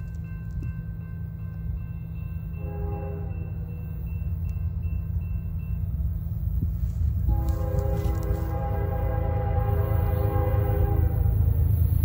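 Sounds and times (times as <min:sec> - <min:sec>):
low rumble of locomotive: 0:00.0 - 0:12.0
locomotive air horn blasts: 0:02.6 - 0:03.6, 0:07.1 - 0:12.0.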